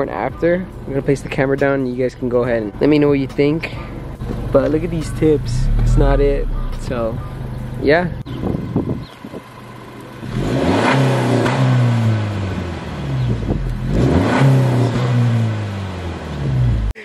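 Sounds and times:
car engine revving: 4.2s - 7.9s, 10.1s - 17.0s.

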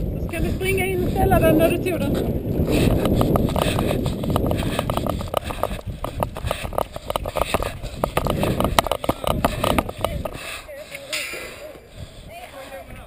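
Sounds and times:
microphone handling noise: 0.0s - 10.5s
wind rumble: 0.0s - 10.7s
bicycle clicking and rattling: 2.4s - 10.4s.

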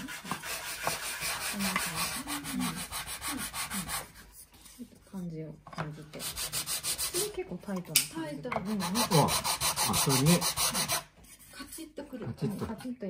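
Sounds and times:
wood rasping on sandpaper: 0.0s - 4.2s, 6.2s - 7.4s, 8.7s - 11.1s.

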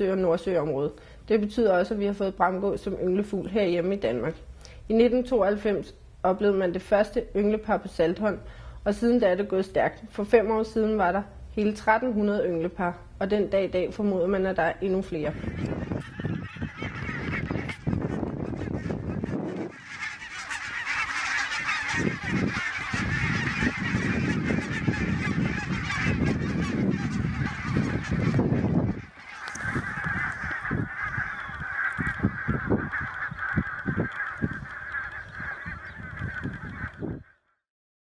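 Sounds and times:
geese barking calls: 14.1s - 37.5s.

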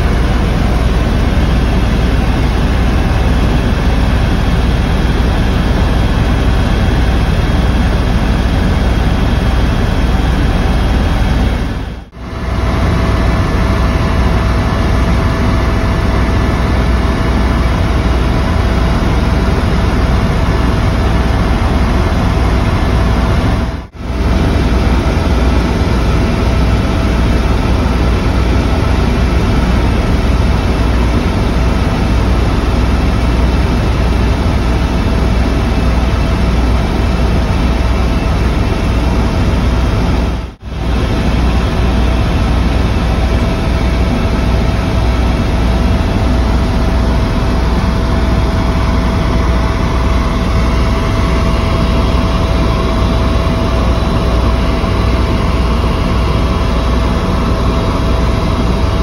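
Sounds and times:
helicopter engine and rotor drone: 0.0s - 59.0s.

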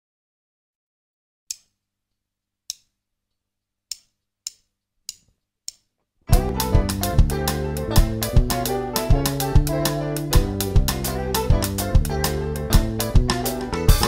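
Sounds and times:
latin groove with drum kit: 6.3s - 14.0s.

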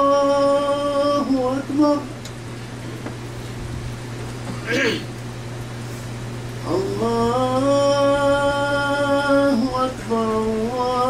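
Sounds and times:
steady low hum: 0.0s - 11.0s
man chanting: 6.6s - 11.0s.

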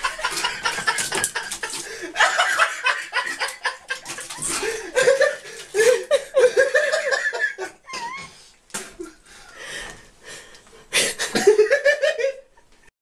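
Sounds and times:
person giggling: 0.0s - 9.2s, 11.0s - 12.5s.

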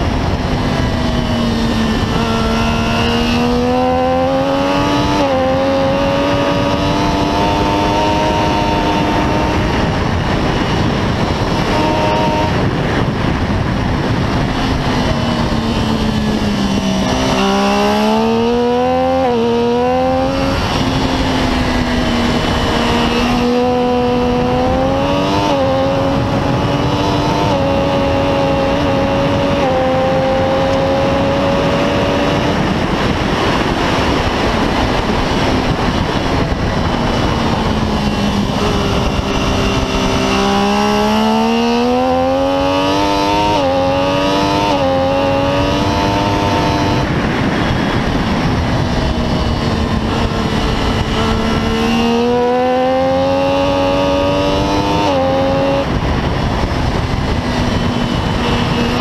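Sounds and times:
motorcycle engine at high revs: 0.0s - 59.0s
wind rush: 0.0s - 59.0s.

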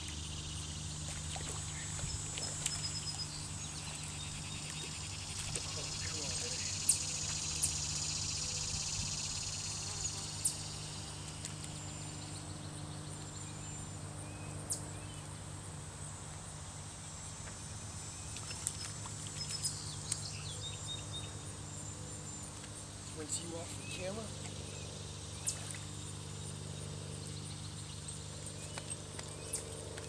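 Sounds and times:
high insect buzz: 0.0s - 12.5s
steady low hum: 0.0s - 30.0s.

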